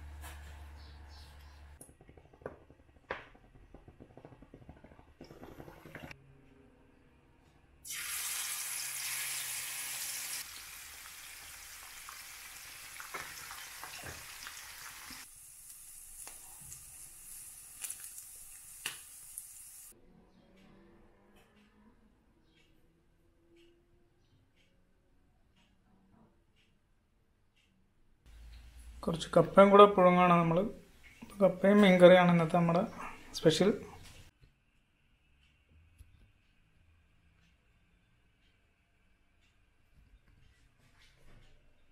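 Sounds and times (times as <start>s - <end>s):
oil popping: 1.8s - 6.2s
fish sizzling in hot oil: 7.9s - 19.9s.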